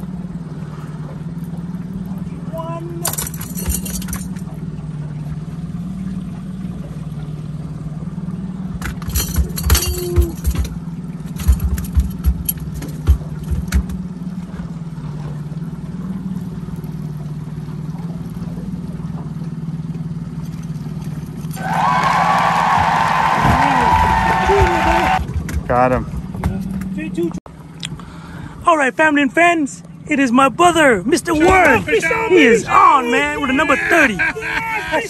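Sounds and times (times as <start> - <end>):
boat motor humming: 0.0 - 35.0
sharp knocks and clatters: 8.8 - 14.1, 24.0 - 25.8.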